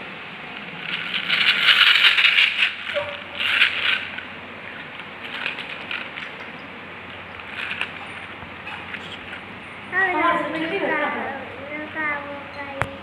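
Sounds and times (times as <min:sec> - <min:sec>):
toy truck wheels scraping whirr: 0:00.8 - 0:04.3.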